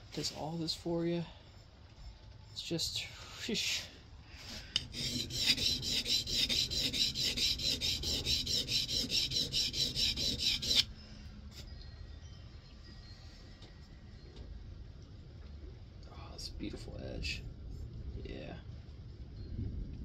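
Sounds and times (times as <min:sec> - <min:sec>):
plane iron scraping on oilstone: 0:04.8 - 0:10.9.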